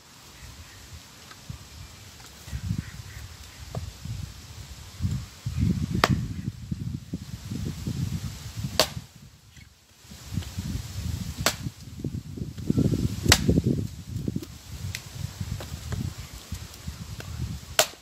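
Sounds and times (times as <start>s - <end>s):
axe chopping wood: 6.0s - 6.3s, 8.8s - 9.1s, 11.4s - 11.7s, 13.3s - 13.6s, 17.8s - 18.0s.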